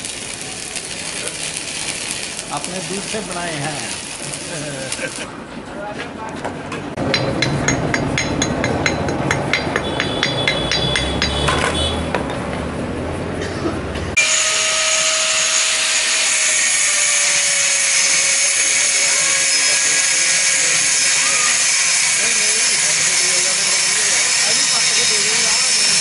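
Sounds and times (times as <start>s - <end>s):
angle grinder on steel pipe: 0.0s - 5.3s, 14.2s - 26.0s
hammer striking steel plate: 7.0s - 12.4s.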